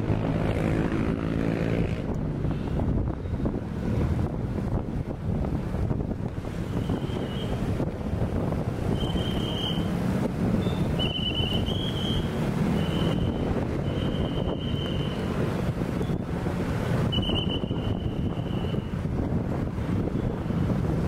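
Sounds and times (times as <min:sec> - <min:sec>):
slow city traffic on wet street: 0:00.0 - 0:21.0
wind buffeting microphone: 0:00.0 - 0:21.0
short high whistle tones: 0:08.9 - 0:09.9, 0:10.6 - 0:15.2, 0:17.1 - 0:18.8.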